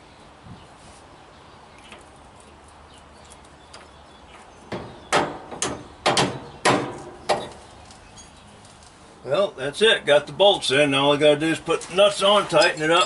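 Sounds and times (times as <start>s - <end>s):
metal-on-metal knocks: 4.7s - 7.6s.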